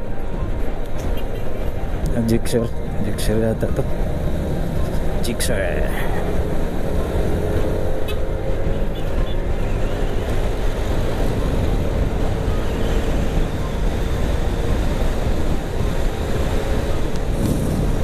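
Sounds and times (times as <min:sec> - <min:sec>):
wind buffeting microphone: 0:10.8 - 0:18.0
scooter engine droning: 0:15.6 - 0:18.0.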